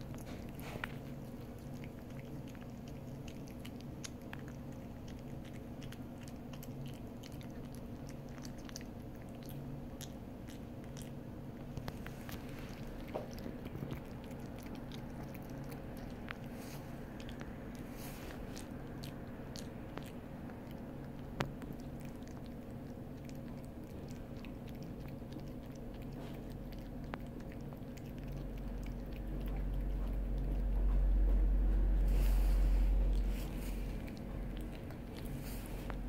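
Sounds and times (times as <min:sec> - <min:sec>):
puppy chewing jerky: 0:00.0 - 0:36.0
low rumble: 0:28.6 - 0:36.0.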